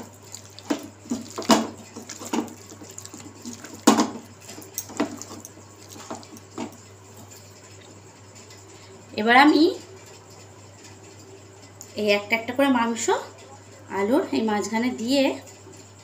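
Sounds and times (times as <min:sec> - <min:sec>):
hand squelching in sticky marinade: 0:00.0 - 0:08.0.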